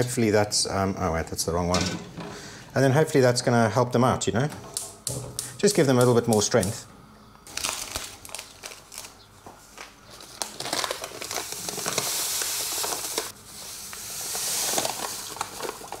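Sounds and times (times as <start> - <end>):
sugar bag crinkling: 7.4 - 16.0
sugar pouring hiss: 11.2 - 16.0.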